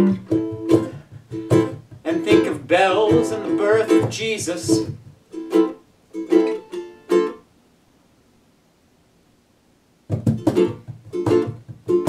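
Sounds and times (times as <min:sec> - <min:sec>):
low thumps: 0:00.0 - 0:05.4, 0:10.1 - 0:12.0
ukulele strumming: 0:00.0 - 0:07.5, 0:10.1 - 0:12.0.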